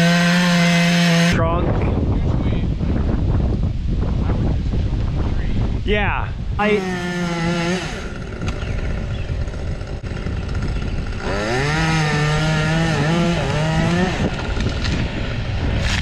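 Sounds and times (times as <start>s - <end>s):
chainsaw revving: 0.0s - 1.4s, 6.6s - 16.0s.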